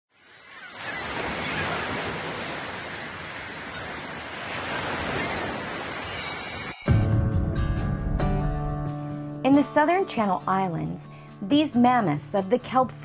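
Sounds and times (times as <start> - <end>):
ocean waves washing: 0.1 - 7.0.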